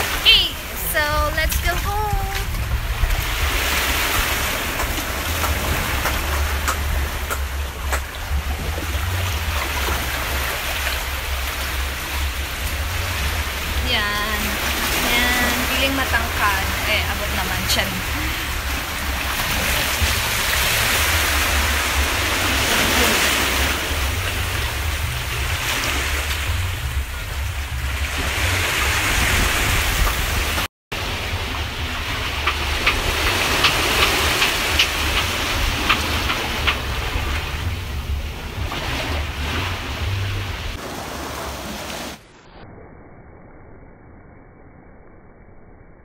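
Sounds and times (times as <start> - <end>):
wind buffeting the microphone: 0.0 - 9.9, 12.3 - 30.7
surf washing over rocks: 0.0 - 42.3.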